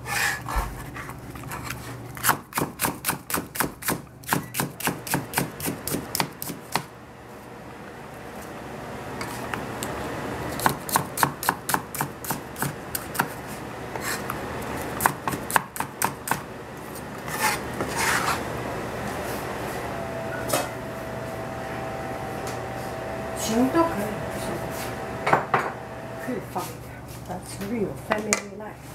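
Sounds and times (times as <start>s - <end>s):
knife chopping on plastic board: 2.2s - 6.9s
knife scraping cutting board: 13.0s - 14.4s, 16.9s - 18.4s.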